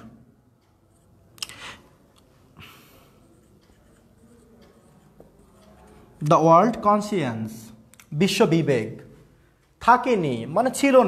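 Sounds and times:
writing strokes on board: 0:02.7 - 0:06.8.

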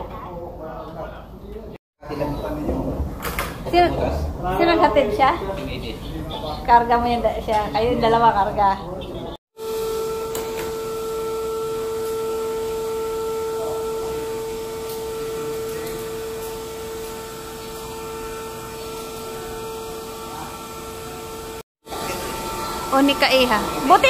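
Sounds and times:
vacuum cleaner running: 0:09.6 - 0:24.0.

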